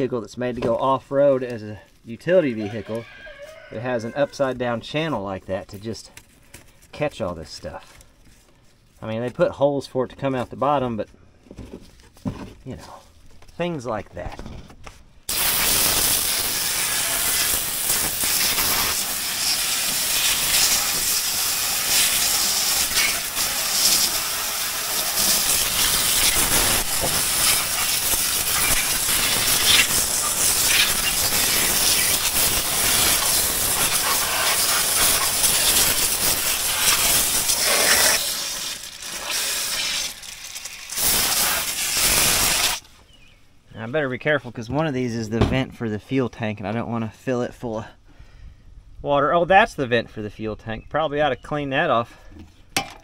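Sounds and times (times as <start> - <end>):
hose nozzle spray hissing: 15.3 - 42.8
water spattering on metal: 15.3 - 42.8.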